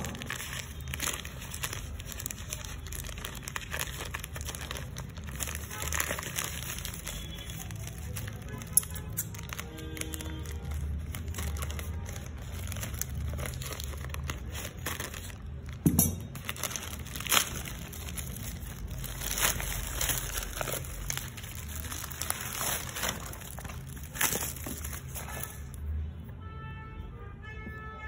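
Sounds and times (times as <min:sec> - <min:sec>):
plastic bag and paper crinkling: 0:00.0 - 0:26.0.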